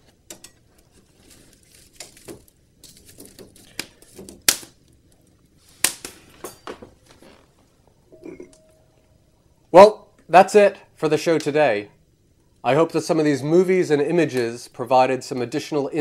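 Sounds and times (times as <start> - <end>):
wood fire crackling: 0.0 - 15.7.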